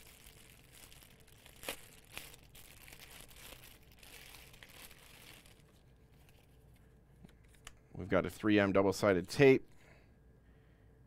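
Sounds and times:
bag crinkling: 0.0s - 6.5s.

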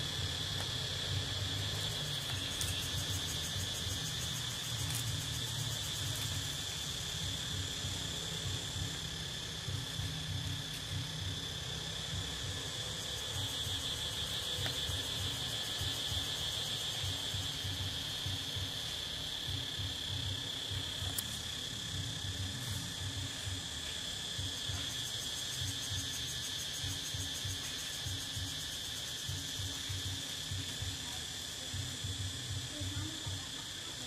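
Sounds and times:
insects droning: 0.0s - 34.0s.

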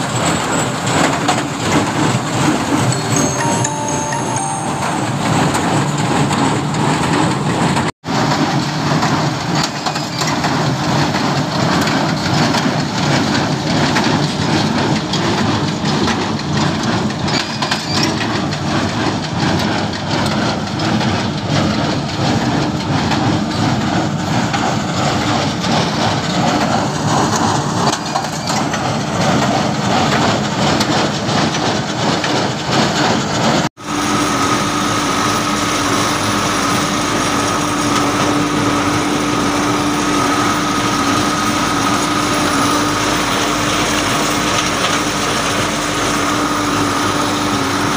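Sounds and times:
tractor diesel engine under load: 0.0s - 47.9s.

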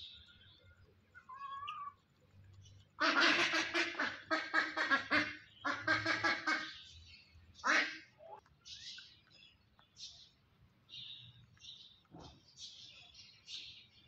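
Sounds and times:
duck quacking rapidly: 3.0s - 6.8s.

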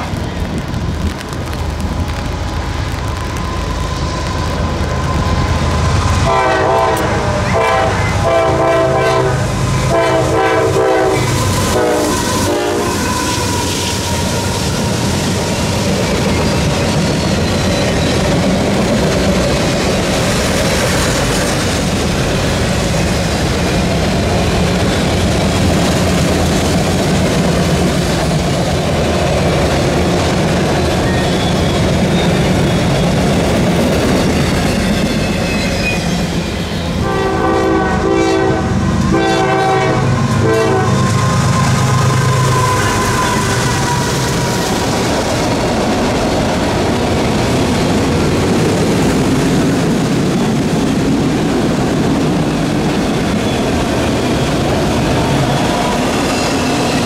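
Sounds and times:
train wheels rumbling and clicking: 0.0s - 57.0s
locomotive air horn: 6.2s - 13.3s, 37.0s - 44.1s.

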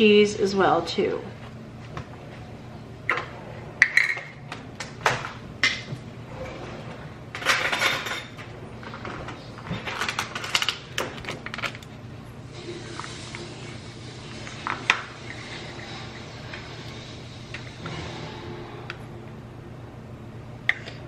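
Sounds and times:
low steady hum: 0.0s - 21.0s
utensils and containers clattering: 3.1s - 11.9s
noisy scrape: 12.6s - 19.3s.

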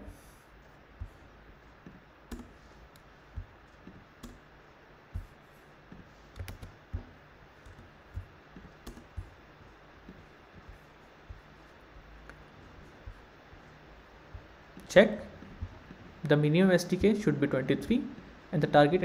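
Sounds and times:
keyboard and mouse clicks: 1.8s - 4.5s, 5.9s - 9.4s.

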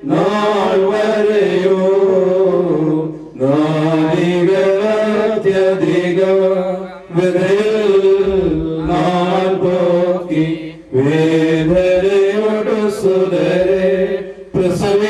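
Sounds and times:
men chanting a hymn: 0.0s - 15.0s.

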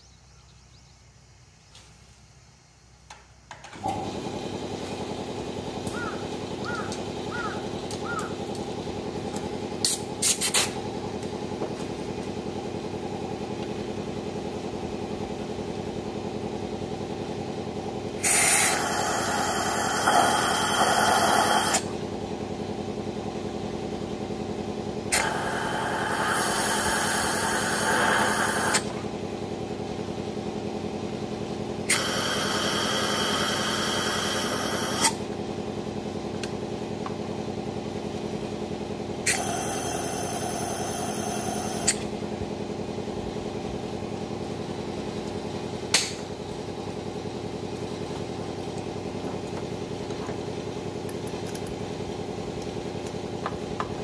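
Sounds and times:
engine idling: 2.4s - 54.0s
aerosol can spraying: 18.2s - 21.8s.

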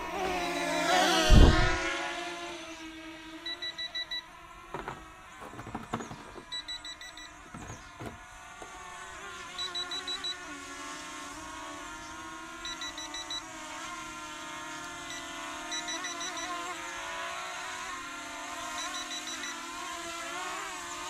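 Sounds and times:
quadcopter motors whining: 0.0s - 21.0s
short high beeps: 3.5s - 4.2s.

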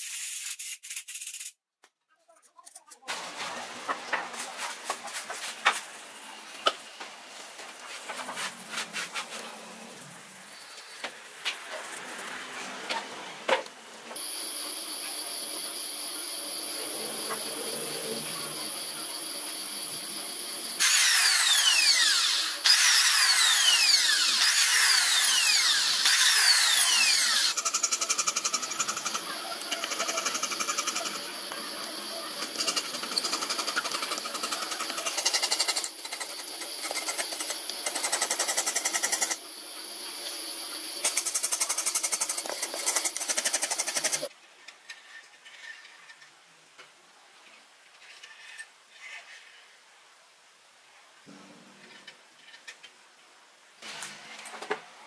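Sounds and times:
power tool motor whining: 20.8s - 27.8s.

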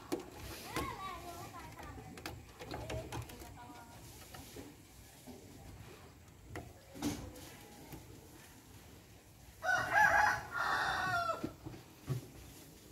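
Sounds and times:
rooster crowing: 9.6s - 11.5s.

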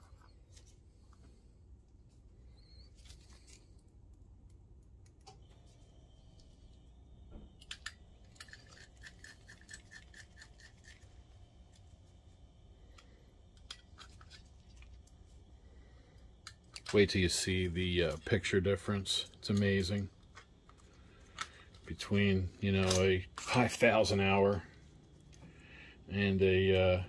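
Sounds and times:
plastic housing clicks and scraping: 7.5s - 11.1s, 12.9s - 15.2s, 16.3s - 17.0s, 19.5s - 21.9s.

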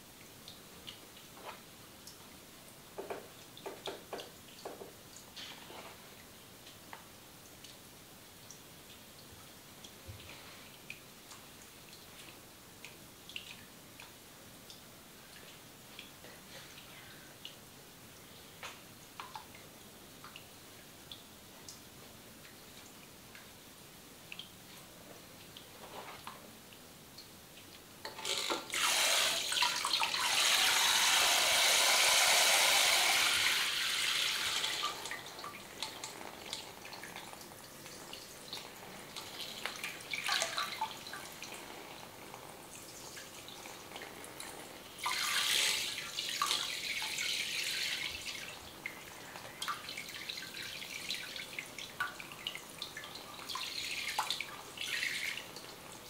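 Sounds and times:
shower head spraying water: 28.2s - 35.1s.

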